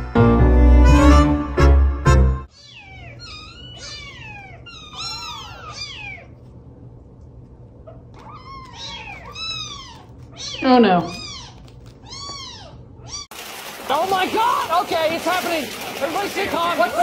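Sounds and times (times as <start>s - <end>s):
piano music: 0.0s - 2.5s
kittens mewing: 2.5s - 6.6s, 7.7s - 13.3s.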